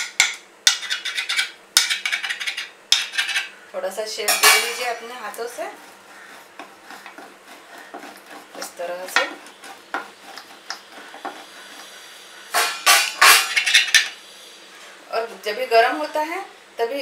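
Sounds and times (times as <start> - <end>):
utensils clattering: 4.3 - 5.2, 12.5 - 14.2
rolling pin knocking and scraping: 4.4 - 11.9.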